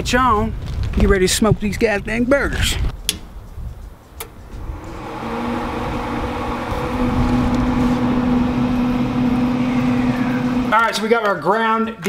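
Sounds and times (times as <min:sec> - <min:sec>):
fan and motor humming: 0:04.1 - 0:11.3.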